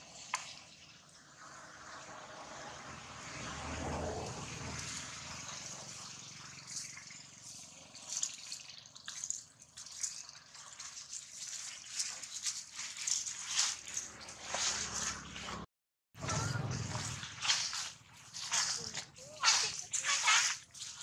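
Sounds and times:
dry leaves rustling and crackling: 6.6 - 15.6, 16.2 - 21.0.

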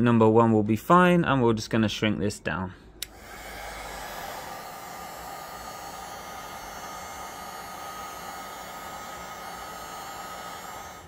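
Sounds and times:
faint steady whine: 2.7 - 11.0
heat gun blowing air: 3.0 - 11.0.

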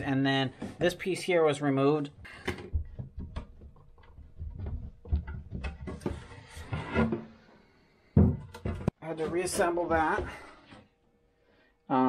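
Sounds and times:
wooden floor panel knocking and scraping: 2.3 - 7.4, 8.2 - 10.6.

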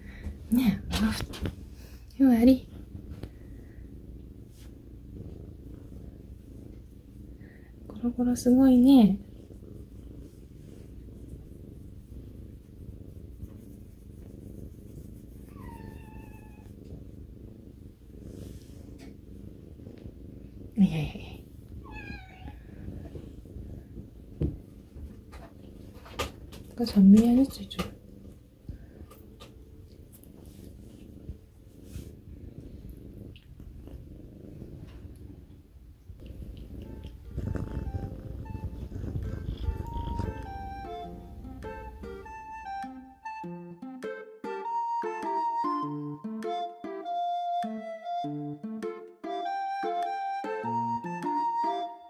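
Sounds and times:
cat purring: 0.0 - 43.3
rustles of fur and bedding: 4.4 - 4.9, 18.2 - 27.7, 28.6 - 33.1, 36.2 - 42.0.

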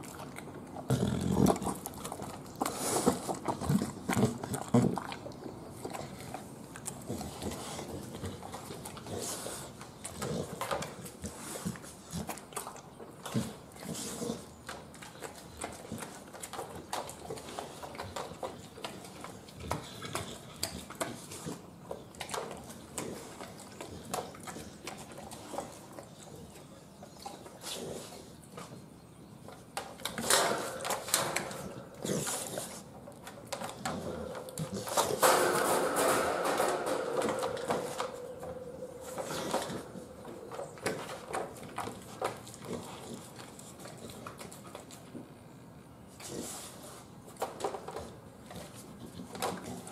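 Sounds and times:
dog licking and chewing food: 0.0 - 35.6, 37.1 - 49.9.

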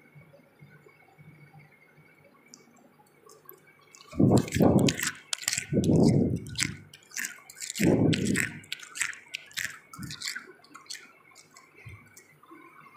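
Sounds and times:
frost crunching and crackling: 3.3 - 12.3.

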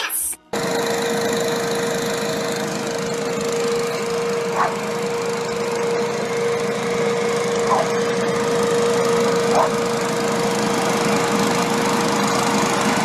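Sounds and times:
leaf blower engine droning: 0.0 - 13.0
dog barking: 4.5 - 4.8, 7.7 - 8.0, 9.5 - 9.8.

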